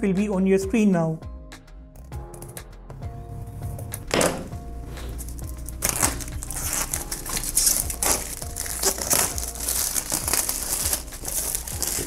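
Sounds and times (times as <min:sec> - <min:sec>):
plastic shrink-wrap crinkling: 0:04.8 - 0:12.0.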